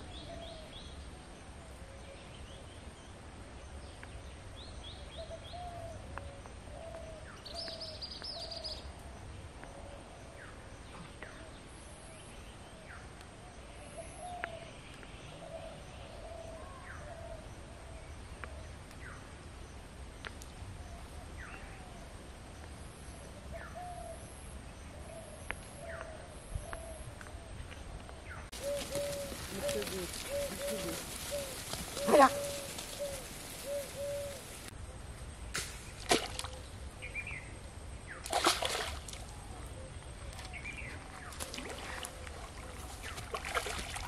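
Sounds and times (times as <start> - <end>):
dove cooing: 28.5 - 34.7.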